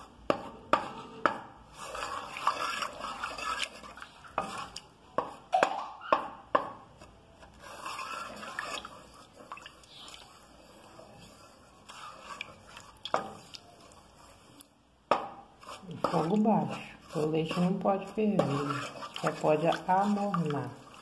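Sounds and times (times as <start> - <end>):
spoon scraping saucepan: 0.5 - 6.3, 7.0 - 14.6, 15.2 - 21.0
spoon knocking pan: 5.1 - 6.8, 15.1 - 15.4.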